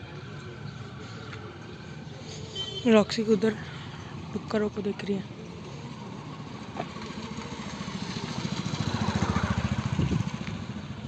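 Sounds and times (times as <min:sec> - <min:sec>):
motorcycle engine passing: 0:05.7 - 0:11.0.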